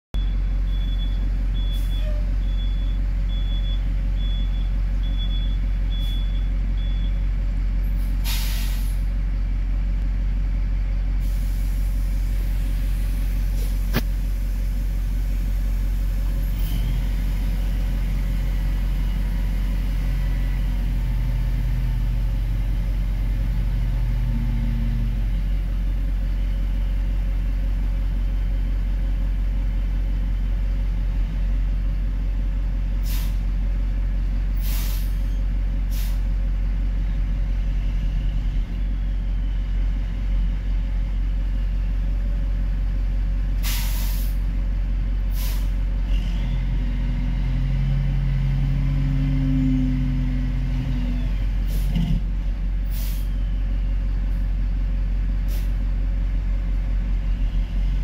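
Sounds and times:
diesel truck engine droning: 0:00.2 - 0:58.0
air hissing out: 0:08.2 - 0:09.0, 0:11.2 - 0:14.8, 0:34.6 - 0:35.2, 0:43.6 - 0:44.4.

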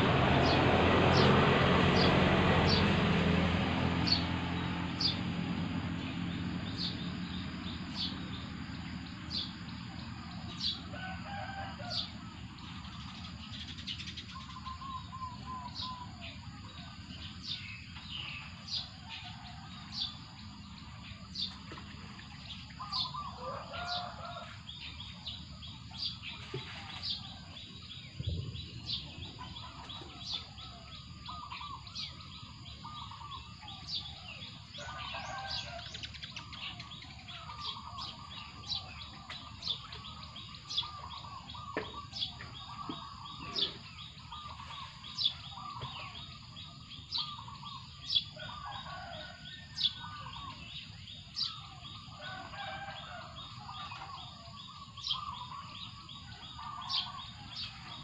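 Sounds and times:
low rumble: 0:27.6 - 0:30.2.

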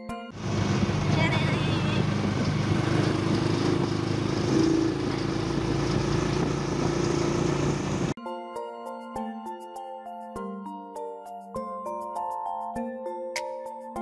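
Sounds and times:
motorcycle engine running: 0:00.4 - 0:08.2
wind rushing: 0:00.4 - 0:08.2
light xylophone-like music: 0:08.2 - 0:14.0.

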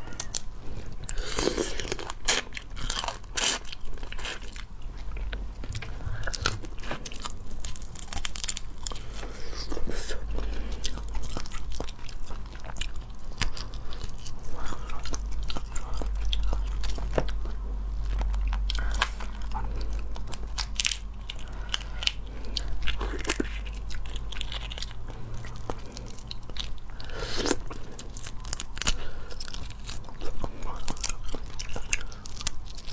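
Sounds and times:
chewing and mouth noises: 0:00.0 - 0:32.9
shells cracking and crunching: 0:05.7 - 0:17.4, 0:18.0 - 0:32.9.

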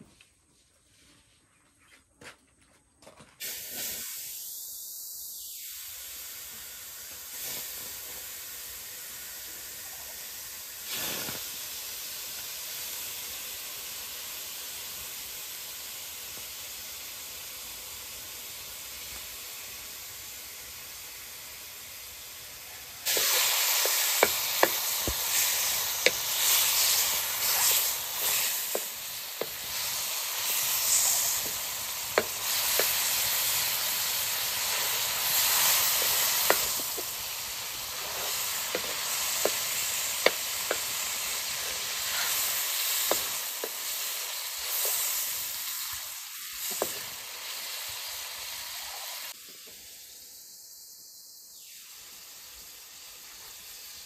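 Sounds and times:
food sizzling in a pan: 0:03.4 - 0:54.0
oil crackling and popping: 0:22.4 - 0:49.6.

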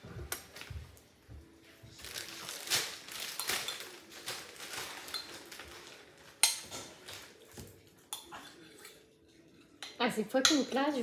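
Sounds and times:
utensils scraping and clinking: 0:03.3 - 0:11.0.

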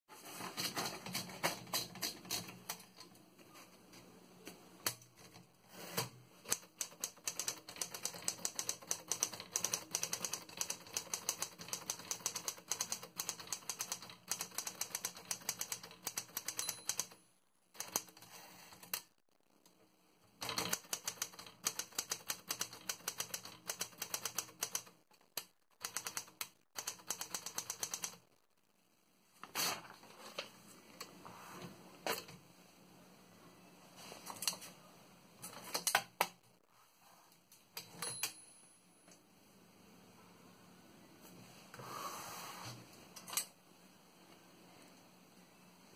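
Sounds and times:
typewriter keys clacking: 0:00.6 - 0:02.9, 0:06.5 - 0:17.2, 0:17.8 - 0:19.0, 0:20.4 - 0:28.2.

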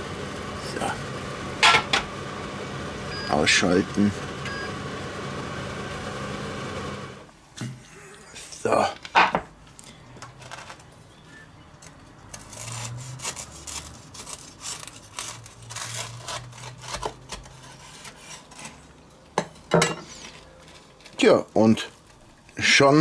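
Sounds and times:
knife cutting toasted sandwich: 0:12.3 - 0:18.9.

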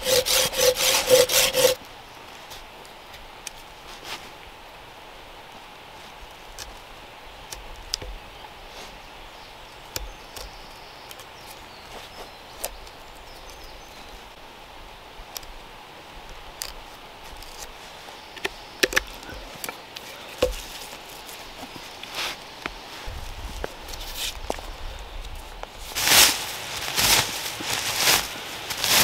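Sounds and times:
knife cutting a green stick: 0:00.0 - 0:01.8.

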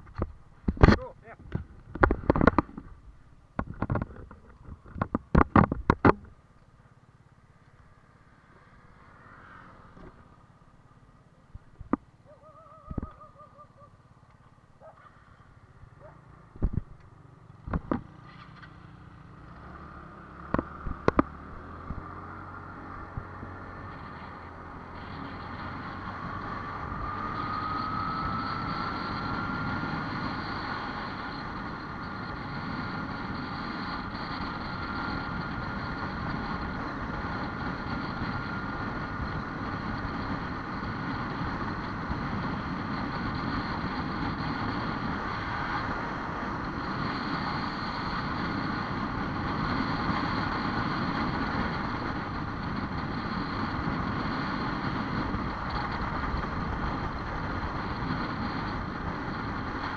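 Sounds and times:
vehicle engine and road noise: 0:00.0 - 0:59.9
thin whine: 0:17.7 - 0:59.9.

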